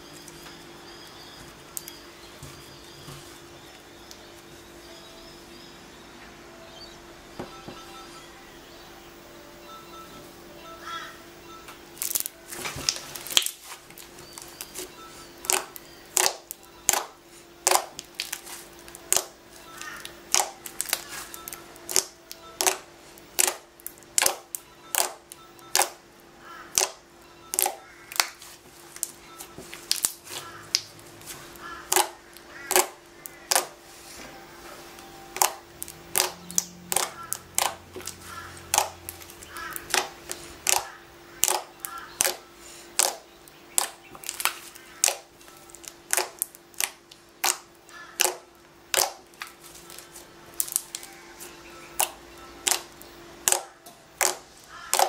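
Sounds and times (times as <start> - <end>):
faint steady hum: 0.0 - 55.0
slime clicking and popping: 12.0 - 13.6, 15.4 - 18.4, 19.0 - 26.0, 26.7 - 28.4, 31.8 - 33.7, 35.4 - 42.4, 43.0 - 49.5, 50.6 - 51.1, 52.0 - 55.0.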